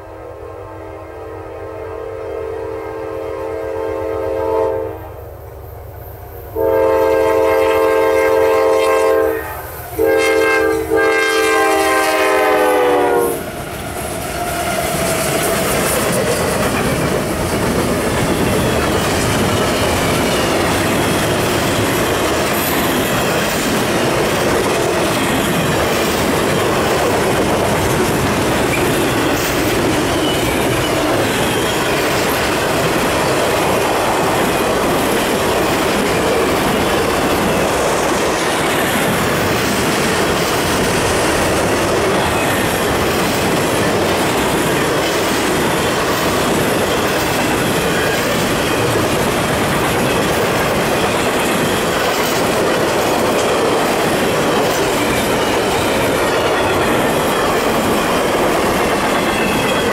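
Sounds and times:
locomotive air horn blasts: 0:00.4 - 0:05.1, 0:06.6 - 0:13.4
train wheels clicking on rails: 0:13.3 - 0:59.9.

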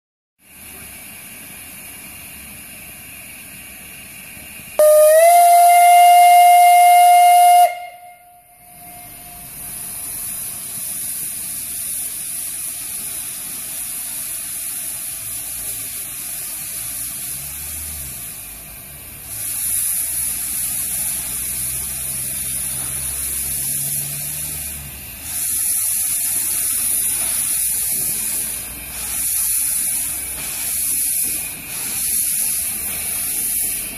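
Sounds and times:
steam venting hiss: 0:00.4 - 0:33.9
steam locomotive whistle: 0:04.8 - 0:09.9.

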